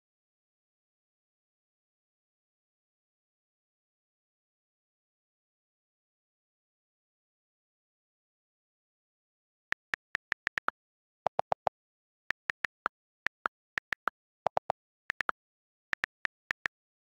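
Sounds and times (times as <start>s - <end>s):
phone keyboard clicks: 9.7s - 10.7s, 11.3s - 11.7s, 12.3s - 15.4s, 16.0s - 16.8s.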